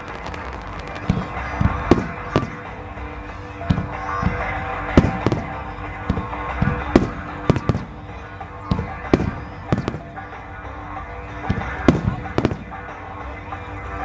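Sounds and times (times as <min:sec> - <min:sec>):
fireworks bangs: 0:00.0 - 0:13.1
music playing: 0:00.0 - 0:14.0.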